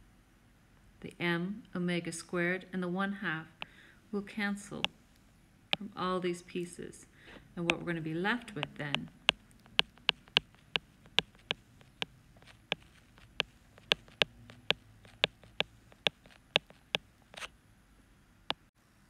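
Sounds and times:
stylus tapping on tablet screen: 7.7 - 17.5.

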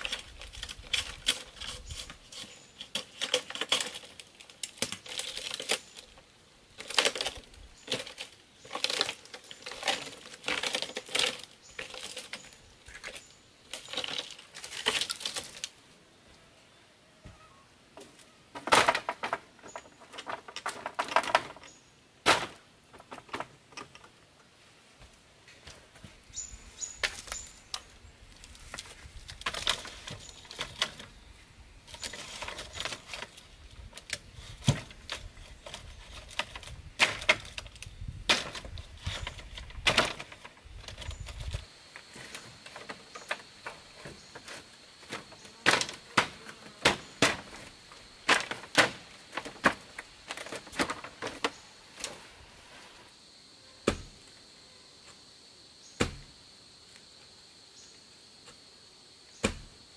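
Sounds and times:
bamboo slats clacking: 0.0 - 6.2, 6.8 - 15.7, 18.0 - 24.2, 31.9 - 41.6, 42.2 - 52.2.

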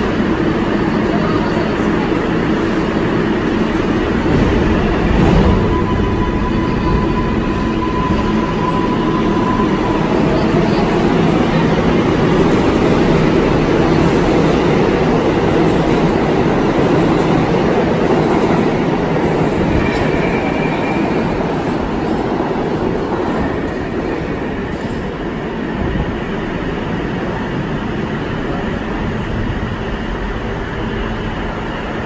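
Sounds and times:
subway train rumbling: 0.0 - 32.0
high-pitched whine: 3.7 - 16.1.

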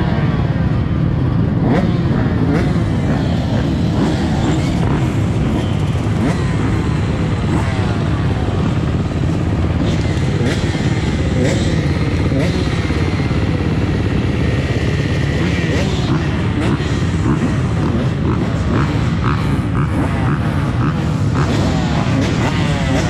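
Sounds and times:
dirt bike engine revving: 1.4 - 23.0.

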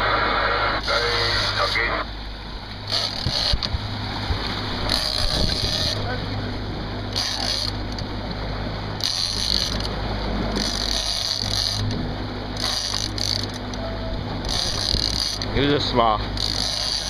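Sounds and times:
boat engine running: 0.0 - 17.0
fishing reel whirring: 2.9 - 3.7, 4.8 - 6.0, 7.1 - 8.0, 9.0 - 10.0, 10.6 - 11.9, 12.6 - 13.8, 14.4 - 15.5, 16.3 - 17.0.

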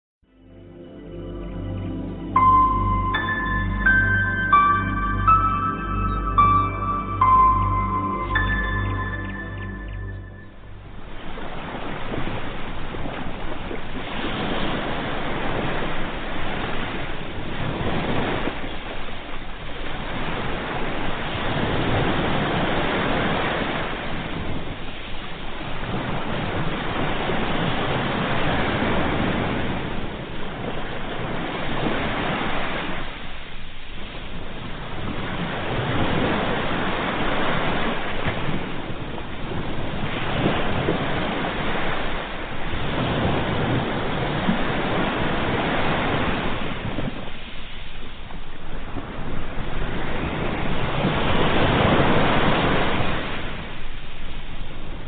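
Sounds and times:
small waves washing over sand: 11.1 - 55.0.

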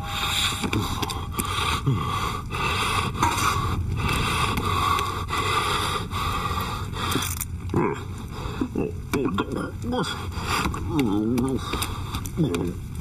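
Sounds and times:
rasping breaths through snorkel: 0.0 - 7.4.

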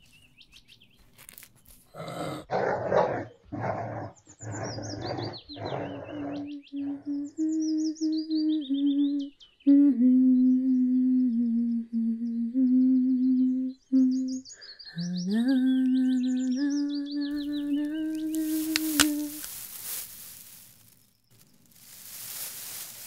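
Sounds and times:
birds chirping: 0.0 - 1.8, 4.0 - 9.7, 13.8 - 23.0
woman humming: 6.4 - 14.4, 15.0 - 20.5.

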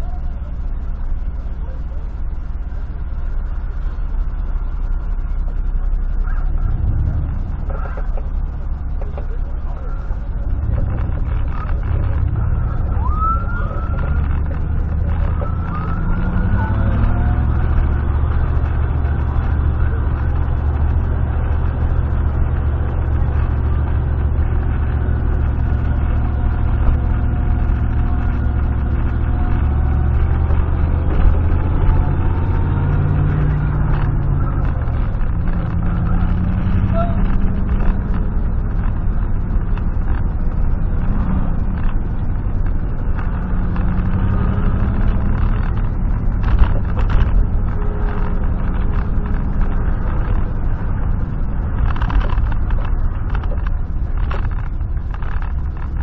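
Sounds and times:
pickup engine drone: 0.0 - 56.0
road noise: 0.0 - 56.0.

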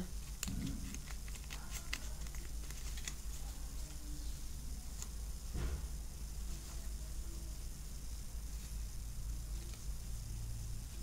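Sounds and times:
low steady hum: 0.0 - 11.0
playing cards flicking: 0.2 - 3.3.

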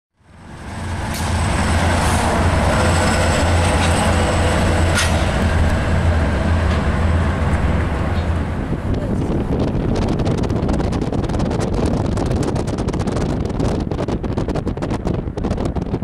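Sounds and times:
diesel locomotive engines droning: 0.2 - 12.8
rolling train wheels: 0.2 - 13.3.

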